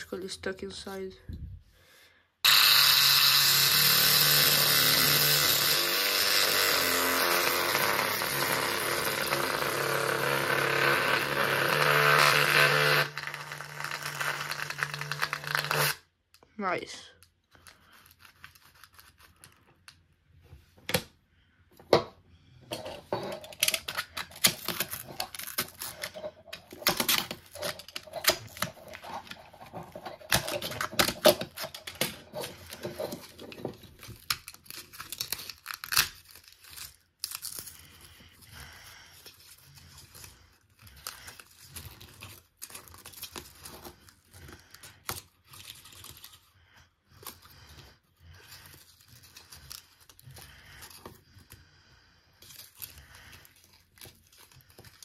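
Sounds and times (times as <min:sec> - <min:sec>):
paper speaker cone ripping: 0:05.5 - 0:16.1, 0:23.5 - 0:37.6.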